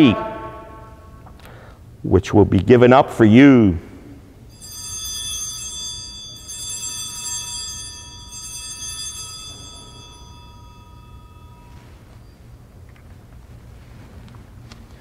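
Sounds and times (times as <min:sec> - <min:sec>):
altar bell ringing: 0:04.5 - 0:12.4.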